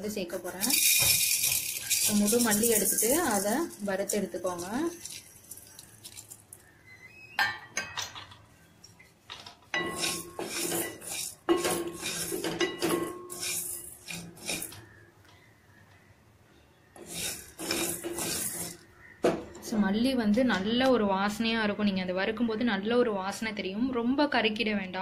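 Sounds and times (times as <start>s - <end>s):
seeds rattling against metal: 0.2s - 6.8s, 9.8s - 15.0s, 17.0s - 18.9s
spatula scraping metal pan: 9.8s - 14.9s, 17.0s - 18.9s.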